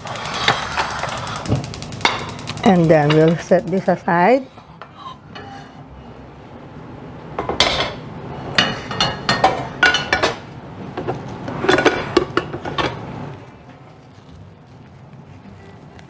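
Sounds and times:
dishes and utensils clinking: 7.4 - 10.4, 11.0 - 13.0.

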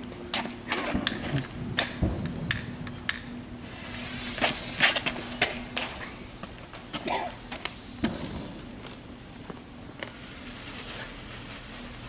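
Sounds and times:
firework fuse hissing: 3.6 - 6.7, 10.0 - 12.0.

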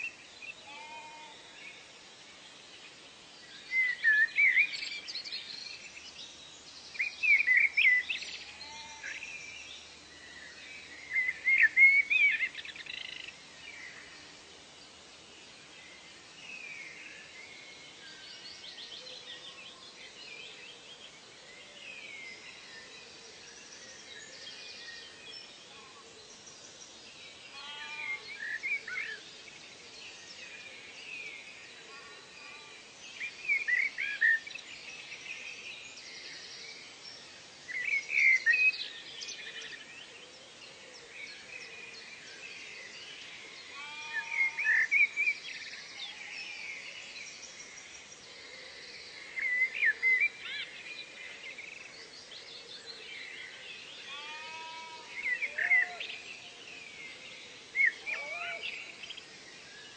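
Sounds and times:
wild birds chirping: 0.0 - 59.9.

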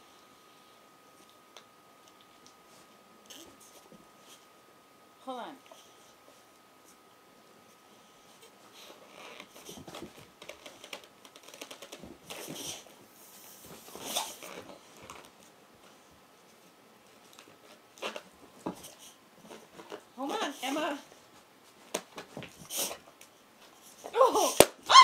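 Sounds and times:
balloon crackling and squeaking: 10.4 - 12.8.

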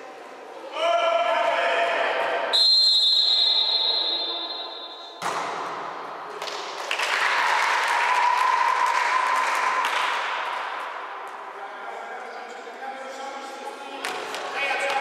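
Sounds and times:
referee's whistle blown long: 2.5 - 5.2.

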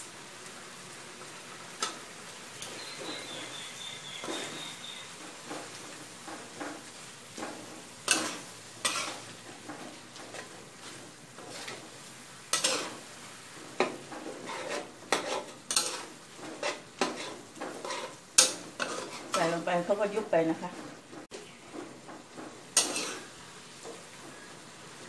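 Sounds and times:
curry sizzling and bubbling: 0.0 - 25.0
metal spatula scraping a wok: 4.2 - 20.0, 22.4 - 23.4.

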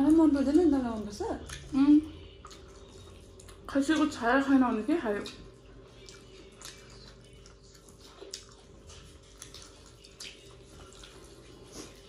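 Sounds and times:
chewing: 0.0 - 4.2, 5.1 - 12.0
fingers mixing food wet squelches: 0.0 - 12.0
low steady hum: 0.0 - 12.0.

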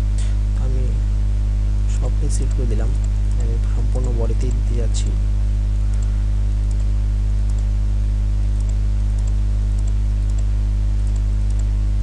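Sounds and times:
electrical mains hum: 0.0 - 12.0
computer mouse clicks: 5.9 - 7.7, 8.6 - 11.7.

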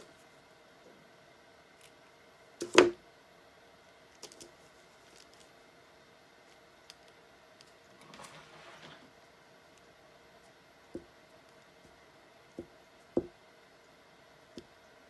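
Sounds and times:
faint steady hum: 0.0 - 15.0
paper and fabric rustling: 7.9 - 9.1.

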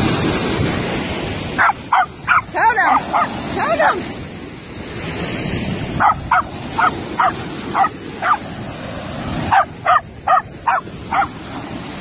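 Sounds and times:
small waves on shore: 0.0 - 12.0
dog yipping: 1.6 - 3.4, 6.0 - 8.5, 9.5 - 11.4.

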